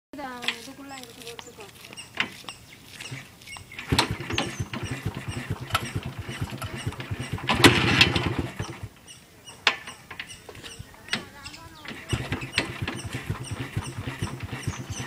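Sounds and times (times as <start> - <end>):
motorcycle engine kick-started: 3.0 - 9.0, 9.8 - 15.0.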